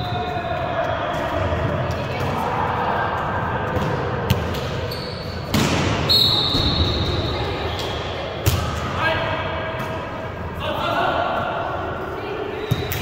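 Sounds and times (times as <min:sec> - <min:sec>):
murmur of spectators' voices: 0:00.0 - 0:13.0
high squeal: 0:04.8 - 0:05.5, 0:06.1 - 0:08.1
volleyball smacks echoing: 0:05.5 - 0:06.8.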